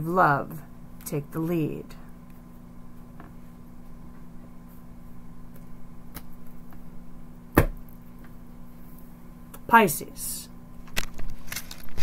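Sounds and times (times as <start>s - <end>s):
steady low hum: 0.0s - 12.0s
cards being shuffled: 10.8s - 12.0s.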